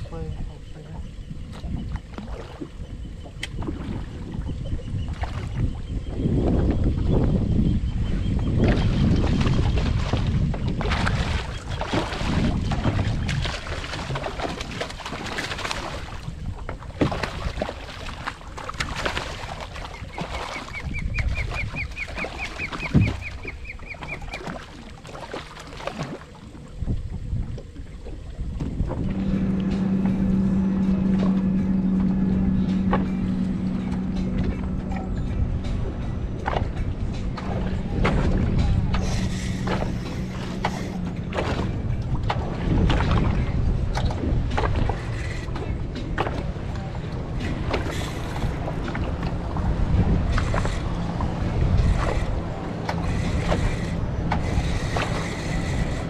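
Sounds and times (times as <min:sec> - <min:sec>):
wind on microphone: 0:00.0 - 0:24.9, 0:25.8 - 0:56.0
low steady hum: 0:00.0 - 0:56.0
water lapping against boat hull: 0:00.0 - 0:56.0
sharp water slaps: 0:03.4 - 0:03.9, 0:08.6 - 0:16.2, 0:17.0 - 0:26.3
fish thrashing and splashing: 0:08.7 - 0:26.4
bird calling rapid notes: 0:19.8 - 0:24.5.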